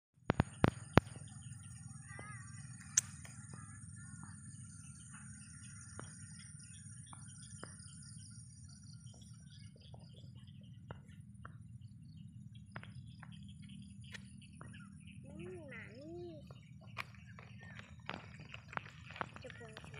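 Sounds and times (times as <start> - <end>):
high-pitched whine: 0.2 - 19.9
small birds chirping: 0.2 - 19.9
low constant rumble: 0.4 - 19.9
sharp clicks: 2.8 - 3.5.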